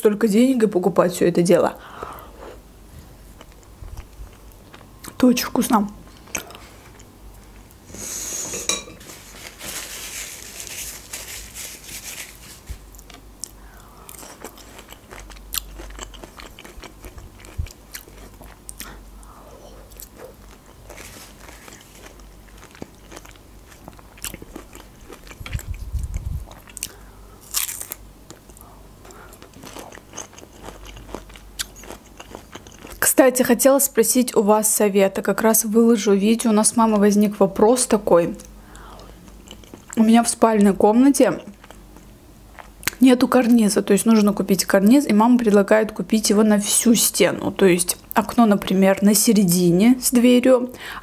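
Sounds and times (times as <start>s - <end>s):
wet chewing: 12.9s - 19.0s, 19.9s - 33.0s
crisp crunching bites: 26.5s - 28.4s.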